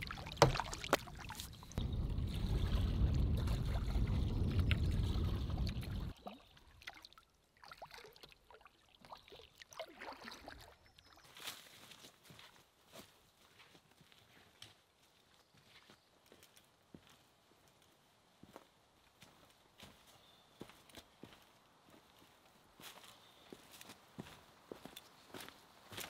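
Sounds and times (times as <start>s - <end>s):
paddle drips and splashes: 0.0s - 11.6s
wind buffeting microphone: 1.6s - 6.1s.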